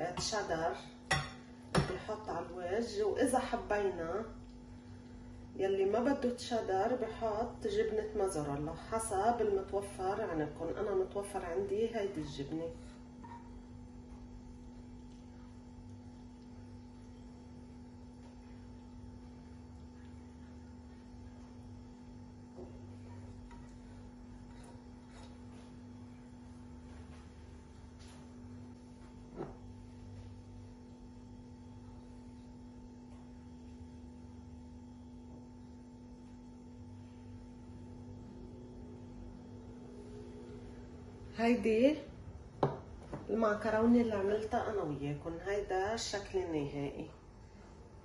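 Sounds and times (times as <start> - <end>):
faint steady hum: 0.0 - 48.0
plate knocking on countertop: 42.6 - 43.3.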